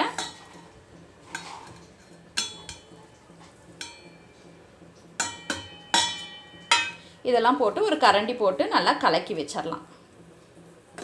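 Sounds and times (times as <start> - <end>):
metal plate clinking on steel bowl: 1.3 - 3.0, 3.8 - 4.3, 5.2 - 7.1.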